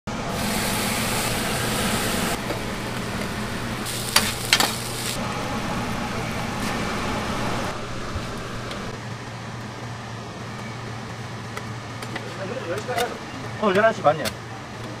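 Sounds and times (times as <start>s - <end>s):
low hum: 0.1s - 12.0s
food sizzling on grill: 0.2s - 8.6s.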